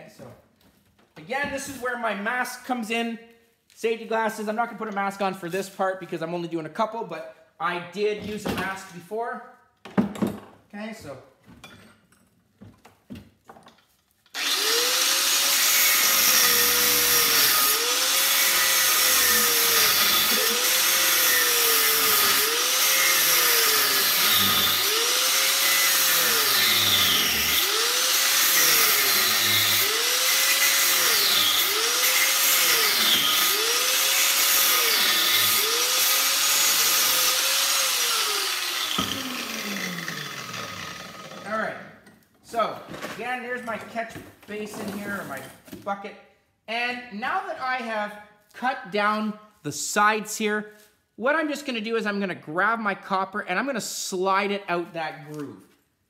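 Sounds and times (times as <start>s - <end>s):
angle grinder cutting: 14.3s - 41.6s.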